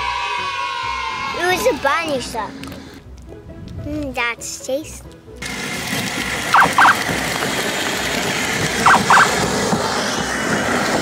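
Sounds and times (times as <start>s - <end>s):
short high squeaks: 6.6s - 7.0s, 8.8s - 9.3s.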